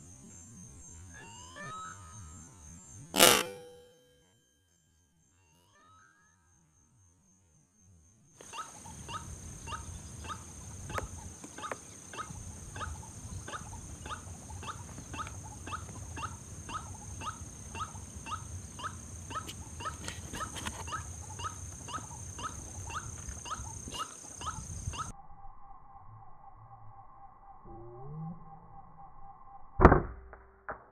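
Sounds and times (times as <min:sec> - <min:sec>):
steady high whine: 0:00.0 - 0:06.4
bird calling repeated notes: 0:00.9 - 0:04.0, 0:08.4 - 0:25.1.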